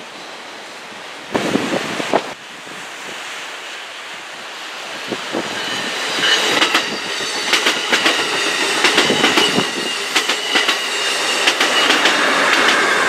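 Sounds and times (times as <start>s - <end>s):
high ringing from wheels on rail: 5.0s - 13.0s
train wheels clattering over rail joints: 5.4s - 13.0s.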